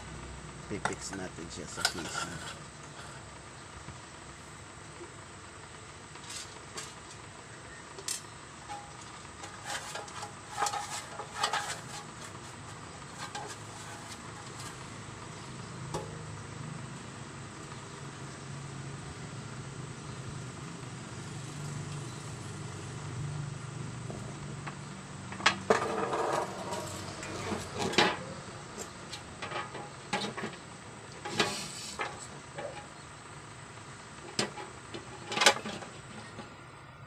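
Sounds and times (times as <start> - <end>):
low steady hum: 0.0 - 37.0
metallic knocks and clatter: 8.0 - 14.8, 25.3 - 30.6.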